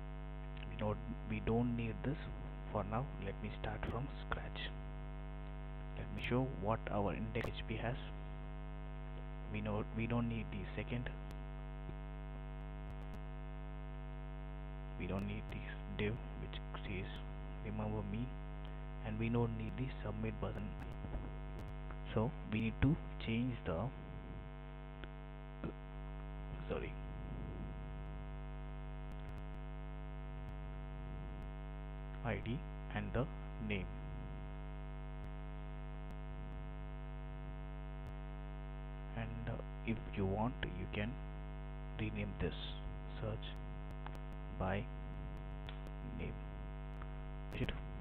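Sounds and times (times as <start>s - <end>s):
electrical mains hum: 0.0s - 48.0s
person speaking: 0.6s - 4.8s, 6.0s - 8.1s, 9.5s - 11.2s, 15.0s - 21.3s, 21.9s - 24.4s, 26.5s - 28.0s, 32.2s - 34.3s, 42.0s - 43.6s, 44.5s - 44.9s, 45.7s - 46.4s, 47.5s - 48.0s
faint ticks: 12.8s - 13.3s, 20.6s - 22.0s, 29.0s - 29.6s, 43.5s - 44.4s.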